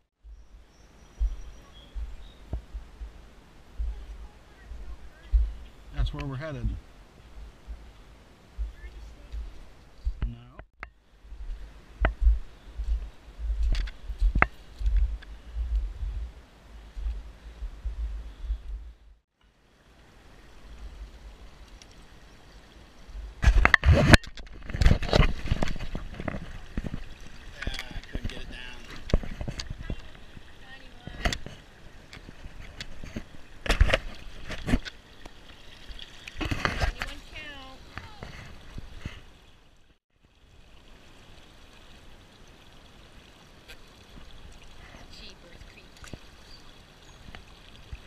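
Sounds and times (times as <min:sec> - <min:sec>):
river current rippling around legs: 0:00.0 - 0:10.2, 0:11.0 - 0:48.0
faint low rumble: 0:00.2 - 0:19.2
knocks and rubbing noises: 0:23.2 - 0:30.5.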